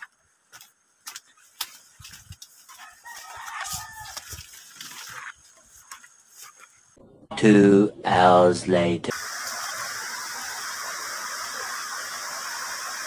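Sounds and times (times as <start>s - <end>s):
rooster crowing: 2.7s - 4.7s.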